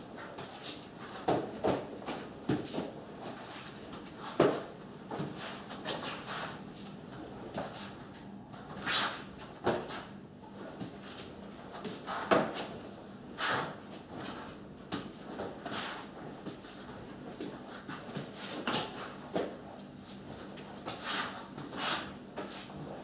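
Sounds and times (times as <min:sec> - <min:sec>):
sticks swishing through air: 0:13.4 - 0:13.8.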